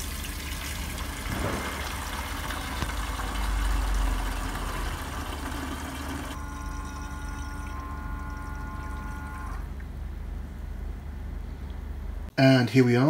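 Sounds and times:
fuel pouring into tank: 0:00.0 - 0:09.9
pump motor humming: 0:00.0 - 0:11.0.

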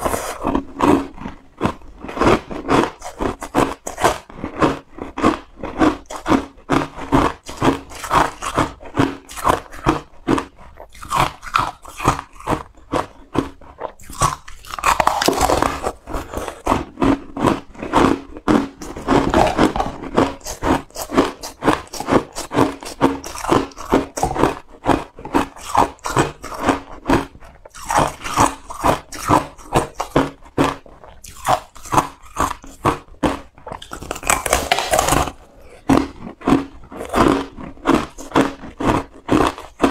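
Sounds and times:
ice being crunched: 0:14.1 - 0:26.7, 0:33.2 - 0:35.4.

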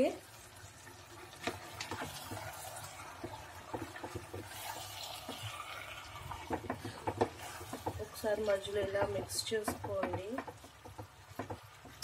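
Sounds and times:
chicken bubbling and sizzling in pan: 0:00.0 - 0:12.0.

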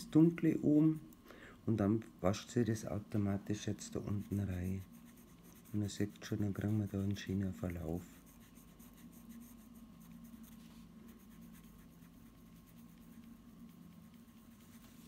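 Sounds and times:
paintbrush scratching on wood: 0:03.4 - 0:15.0.

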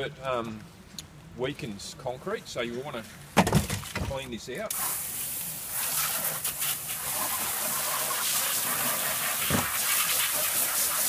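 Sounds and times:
hose spraying water on a tray: 0:04.7 - 0:11.0.

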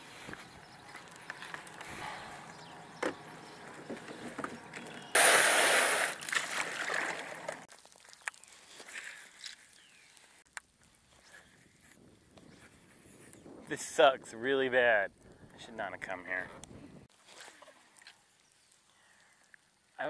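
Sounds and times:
water sloshing: 0:03.6 - 0:08.1.

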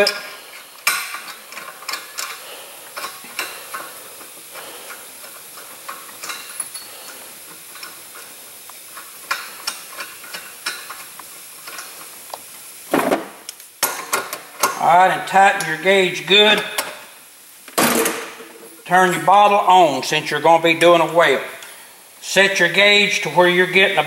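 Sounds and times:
small metallic clicks and scrapes: 0:00.0 - 0:12.5.

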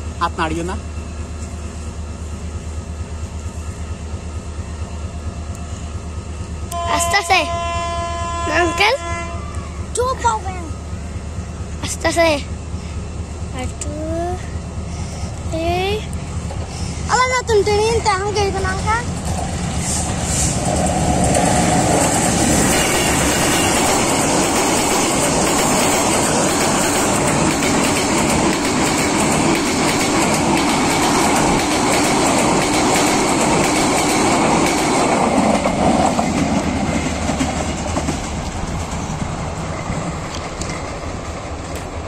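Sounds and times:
train passing: 0:00.0 - 0:42.0
train wheels clattering over rail joints: 0:14.9 - 0:42.0.

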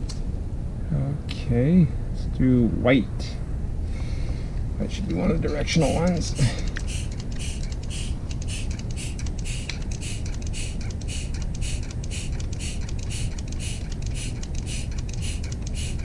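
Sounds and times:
steady low rumble: 0:00.0 - 0:16.0
hand vacuum pump hissing: 0:05.9 - 0:16.0.

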